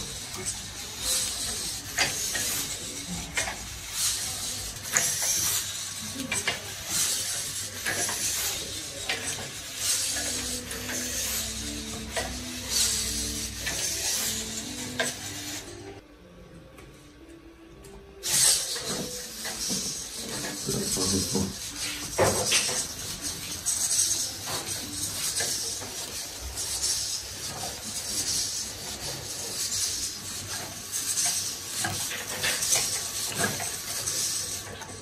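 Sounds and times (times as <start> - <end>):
servo motors whirring: 0.0 - 16.0.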